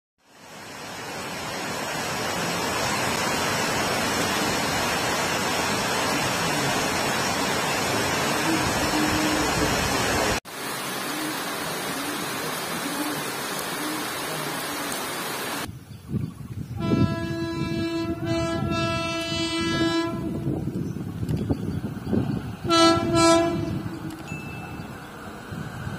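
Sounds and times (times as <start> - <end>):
heavy rain: 0.2 - 15.7, 21.8 - 25.9
locomotive horn blast: 8.3 - 10.0, 16.8 - 20.6, 22.6 - 24.3.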